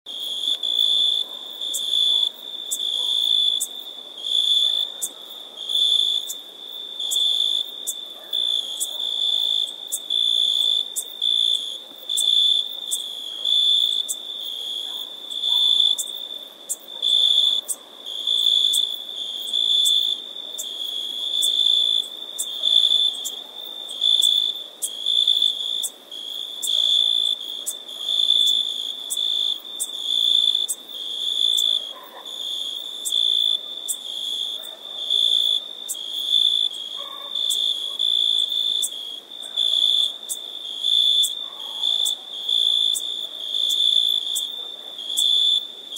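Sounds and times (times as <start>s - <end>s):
cricket chirping: 0.1s - 45.9s.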